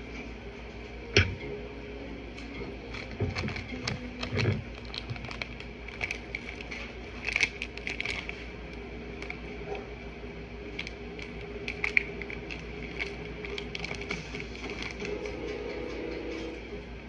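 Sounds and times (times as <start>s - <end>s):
faint steady hum: 0.0s - 17.0s
plastic packet crinkling: 2.8s - 9.6s, 10.6s - 15.3s.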